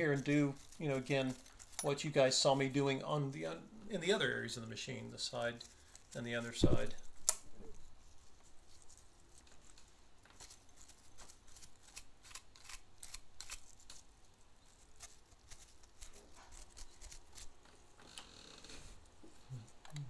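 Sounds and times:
small brush scrubbing: 0:03.9 - 0:18.0.

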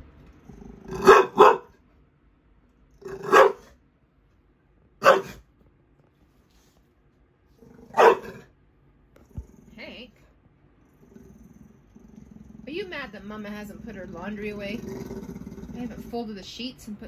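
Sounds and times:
dog barking: 0:00.9 - 0:01.8, 0:03.1 - 0:03.8, 0:05.0 - 0:05.5, 0:07.9 - 0:08.5.

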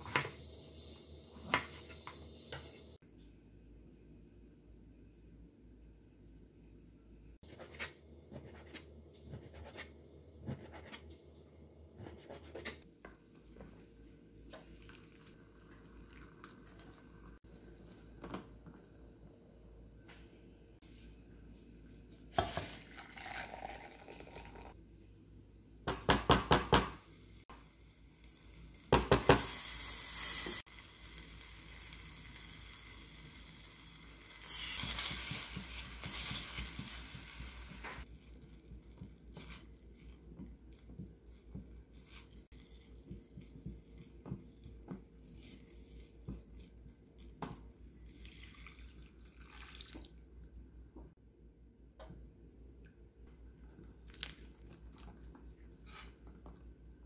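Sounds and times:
broth pouring into cup: 0:22.7 - 0:24.8, 0:48.0 - 0:50.2
paste sizzling in pot: 0:27.0 - 0:50.0.

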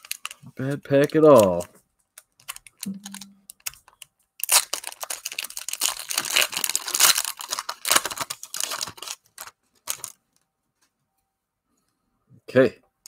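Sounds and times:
plastic wrapper tearing and crinkling: 0:00.0 - 0:10.4.

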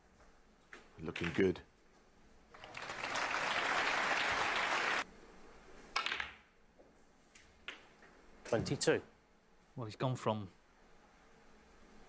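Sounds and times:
audience applauding: 0:02.5 - 0:05.0.

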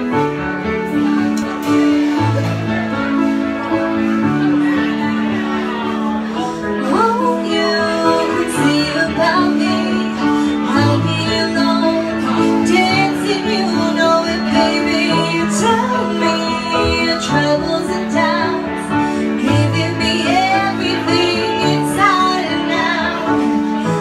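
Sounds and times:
drums: 0:00.0 - 0:06.3
woman singing: 0:06.8 - 0:24.0.

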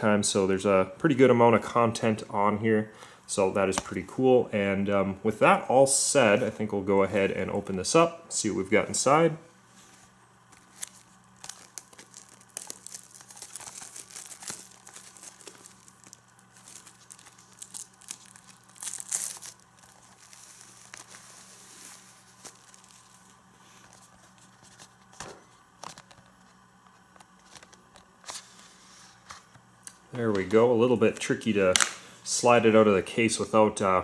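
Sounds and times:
plastic wrap crinkling: 0:09.9 - 0:28.4.

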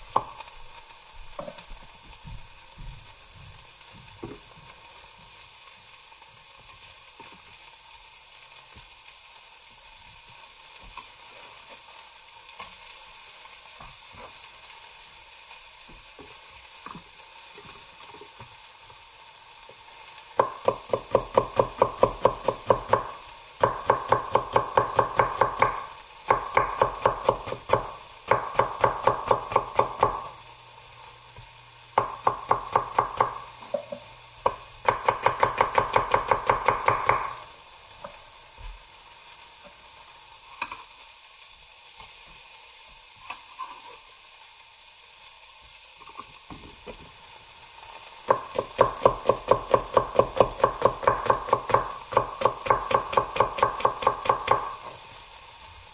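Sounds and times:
knife chopping on wooden board: 0:20.4 - 0:30.3, 0:32.0 - 0:37.4, 0:48.3 - 0:54.8.

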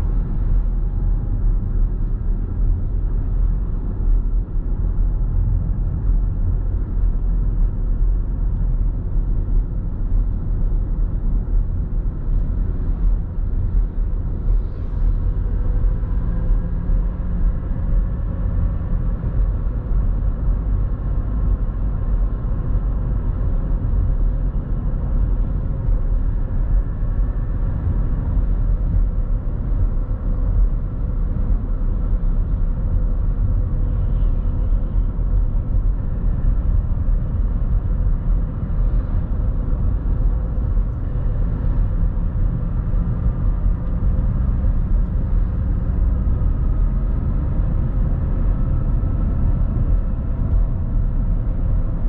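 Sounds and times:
car interior road noise: 0:00.0 - 0:52.0.

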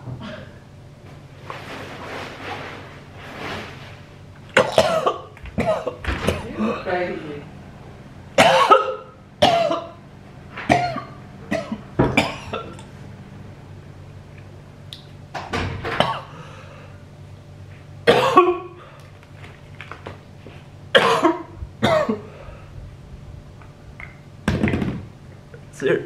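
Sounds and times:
man coughing and gagging: 0:04.5 - 0:06.4, 0:08.4 - 0:10.0, 0:10.7 - 0:12.8, 0:15.9 - 0:16.3, 0:18.0 - 0:18.8, 0:20.9 - 0:22.3
man clearing his throat: 0:04.6 - 0:06.0, 0:08.4 - 0:10.0, 0:18.0 - 0:18.8, 0:20.9 - 0:22.3.

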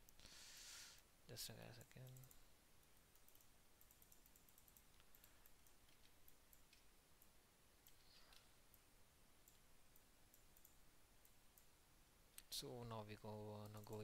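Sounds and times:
faint computer mouse clicks: 0:01.8 - 0:02.4, 0:03.0 - 0:08.8, 0:09.5 - 0:11.7.

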